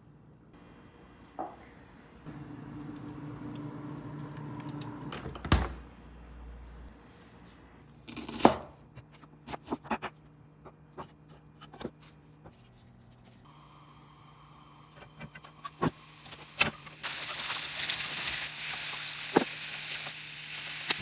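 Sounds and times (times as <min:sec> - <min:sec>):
freezer humming: 0:00.6 - 0:06.8
freezer drawer shutting thud: 0:05.1 - 0:05.8.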